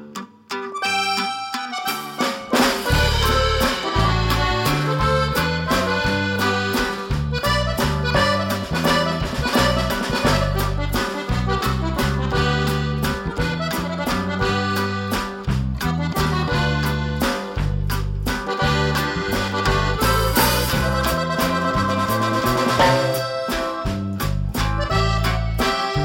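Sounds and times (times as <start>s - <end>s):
lively music with steady beat: 0.0s - 26.0s.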